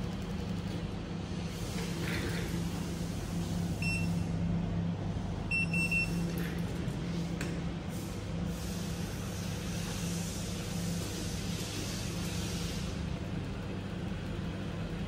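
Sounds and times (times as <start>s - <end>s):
steady low hum: 0.0s - 15.0s
control panel beeps: 3.8s - 4.2s, 5.5s - 6.2s.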